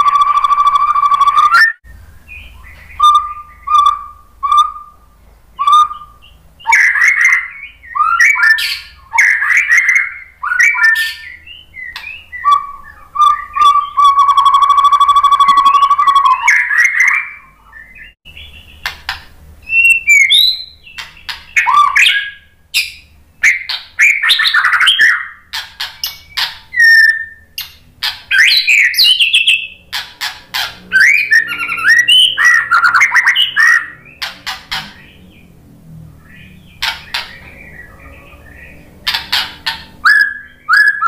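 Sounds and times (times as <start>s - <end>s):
bird singing whistled phrases: 0.0s - 18.8s, 19.6s - 29.8s, 30.9s - 35.5s, 36.3s - 41.0s
buzzy bird note: 0.0s - 41.0s.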